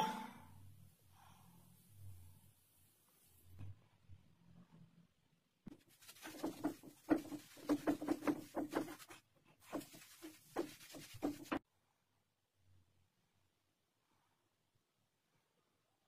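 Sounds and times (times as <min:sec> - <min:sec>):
sponge scrubbing tiles: 0:05.7 - 0:11.6.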